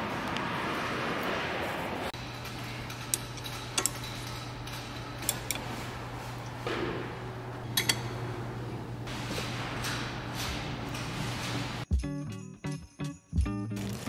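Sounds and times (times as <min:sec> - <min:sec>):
hand tools clicking on metal: 0:02.2 - 0:05.8, 0:07.7 - 0:08.1
steady low hum: 0:02.2 - 0:11.8.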